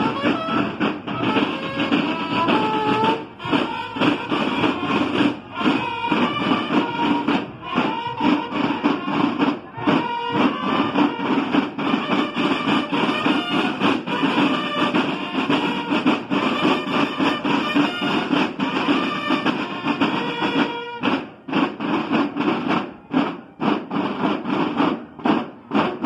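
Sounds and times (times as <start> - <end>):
bugle notes: 0.0 - 25.9
rapid snare drum beating: 0.0 - 26.0.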